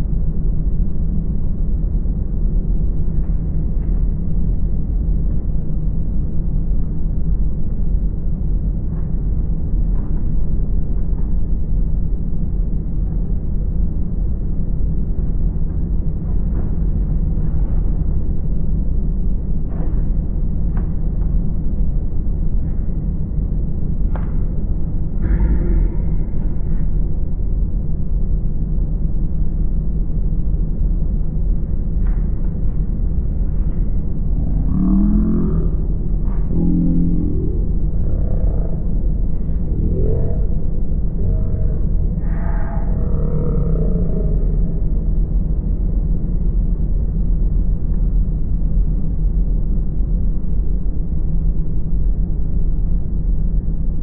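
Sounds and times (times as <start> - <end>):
diesel engine low rumble: 0.0 - 54.0
diesel engine drone: 33.3 - 45.8.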